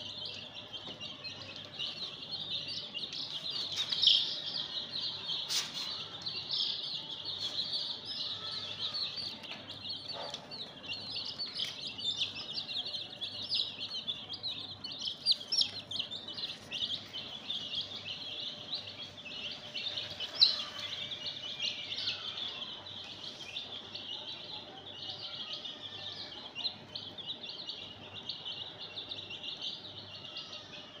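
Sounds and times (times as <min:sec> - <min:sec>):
chicks peeping: 0:00.0 - 0:31.0.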